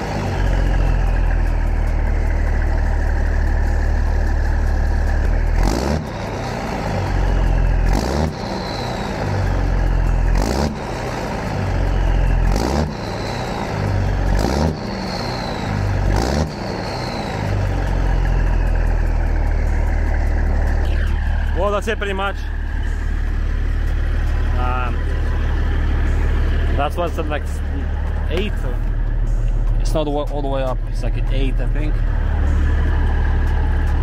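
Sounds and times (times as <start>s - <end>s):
diesel truck engine revving: 0.0s - 34.0s.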